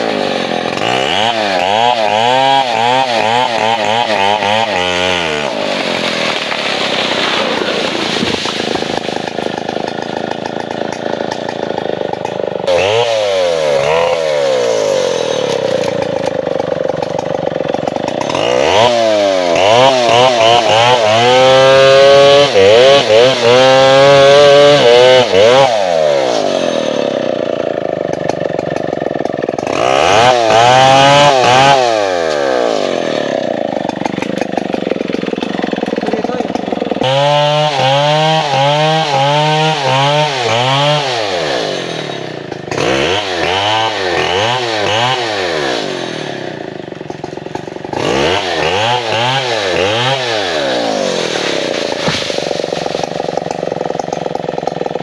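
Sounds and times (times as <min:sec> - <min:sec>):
chainsaw cutting wood: 0:00.0 - 0:55.0
chainsaw idling and revving: 0:00.0 - 0:55.0.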